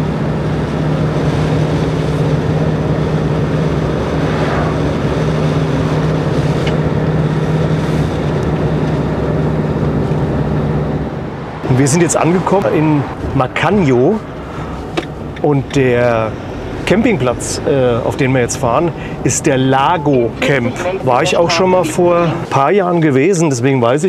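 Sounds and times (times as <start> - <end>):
tyre and wind noise: 0.0 - 17.7
engine drone: 0.0 - 23.3.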